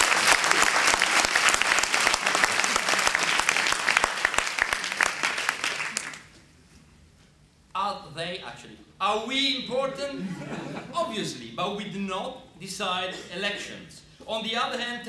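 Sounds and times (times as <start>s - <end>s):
audience clapping: 0.0s - 6.4s.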